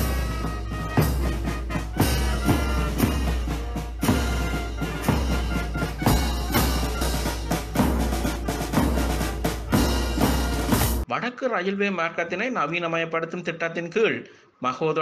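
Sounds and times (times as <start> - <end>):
heavy bass drum: 0.0 - 11.0
music with drum beat: 0.0 - 11.1.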